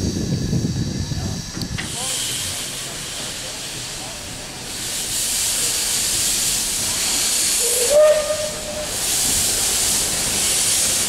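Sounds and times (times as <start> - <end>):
locomotive steam hissing: 0.0 - 11.0
steam whistle: 7.5 - 9.0.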